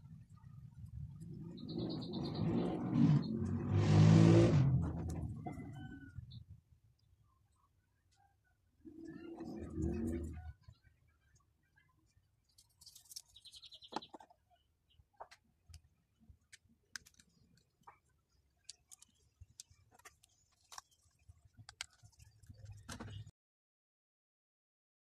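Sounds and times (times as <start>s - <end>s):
plastic toy parts clicking: 16.5s - 17.8s, 18.6s - 20.9s.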